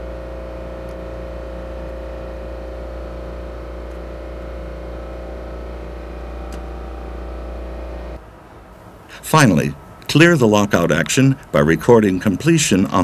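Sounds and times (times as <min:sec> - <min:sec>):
machinery humming: 0:00.0 - 0:13.0.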